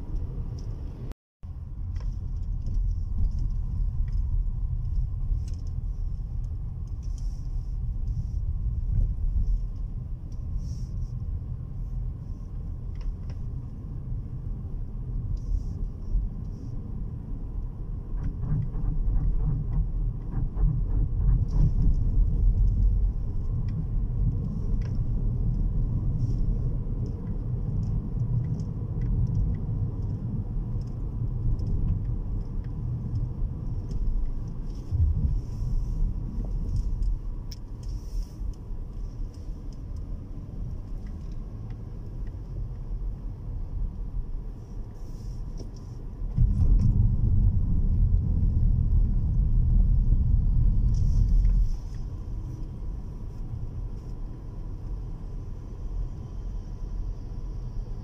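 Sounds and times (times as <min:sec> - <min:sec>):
car engine and tyres rumbling: 0:00.0 - 0:58.0.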